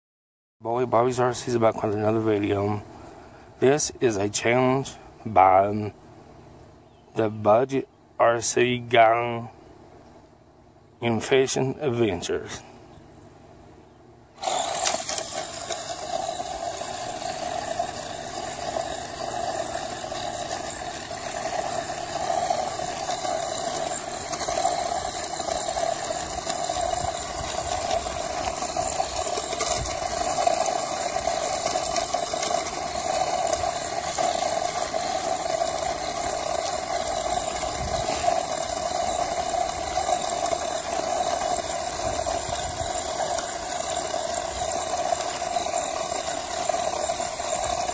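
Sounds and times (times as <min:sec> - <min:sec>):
rc truck motor running on gravel: 0:00.7 - 0:02.9, 0:03.6 - 0:05.9, 0:14.4 - 0:47.9.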